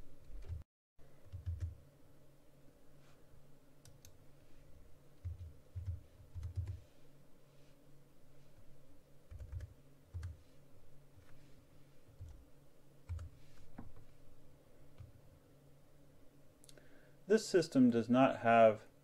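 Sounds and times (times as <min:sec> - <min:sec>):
typing on keyboard: 0:01.3 - 0:01.8, 0:05.2 - 0:06.8, 0:09.3 - 0:10.4, 0:13.1 - 0:13.4.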